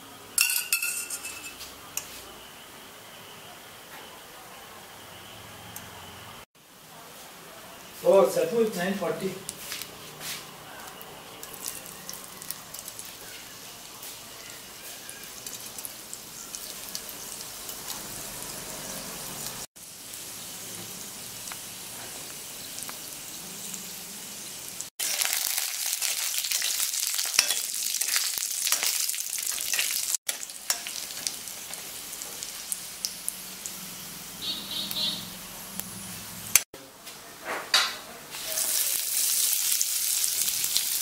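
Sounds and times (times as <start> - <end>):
chillies sizzling in hot oil: 7.8 - 36.6, 38.3 - 41.0.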